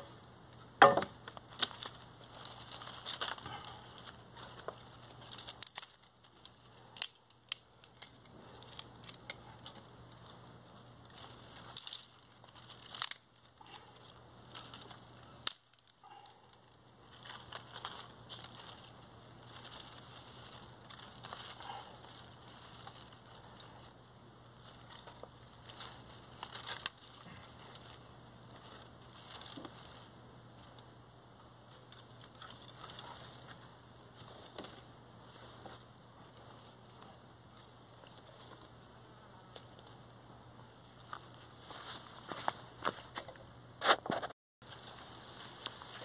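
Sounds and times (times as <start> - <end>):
dry grass and leaves rustling: 0.0 - 46.0
twigs snapping: 0.8 - 10.4, 11.0 - 23.9, 24.6 - 30.8.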